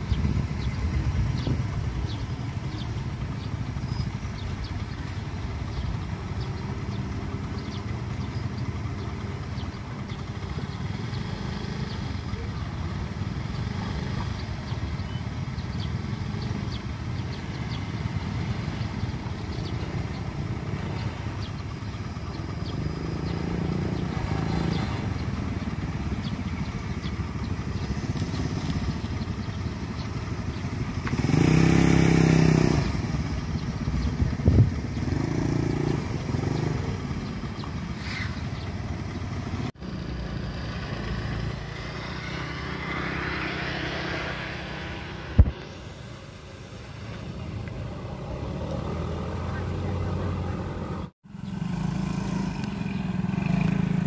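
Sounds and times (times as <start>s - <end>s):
motorcycle engines idling: 0.0s - 54.0s
road traffic: 0.0s - 54.0s
loud vehicle passing close: 22.5s - 29.8s, 30.7s - 54.0s.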